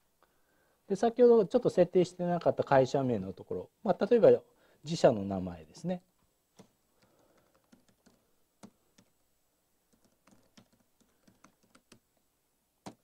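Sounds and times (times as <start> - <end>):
typing on computer keyboard: 6.6 - 9.1, 9.9 - 12.0.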